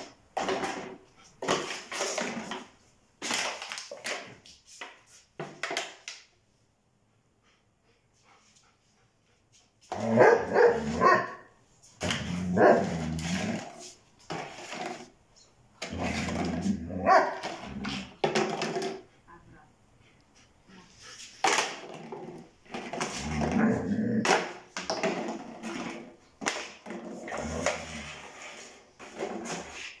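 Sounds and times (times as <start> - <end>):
dog barking: 10.0 - 11.5, 17.0 - 17.4.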